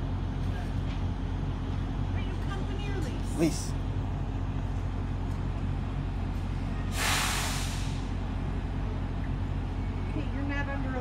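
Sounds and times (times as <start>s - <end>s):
low engine hum: 0.0s - 11.0s
air brakes hiss: 6.9s - 8.2s.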